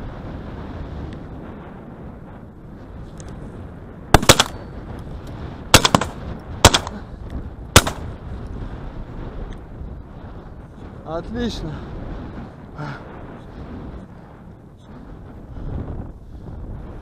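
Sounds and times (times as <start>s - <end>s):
shotgun shots: 4.1s - 4.6s, 5.7s - 7.0s, 7.8s - 8.1s.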